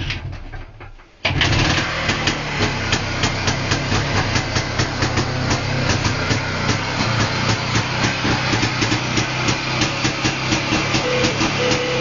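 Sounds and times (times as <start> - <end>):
two-stroke engine running: 1.3 - 12.0.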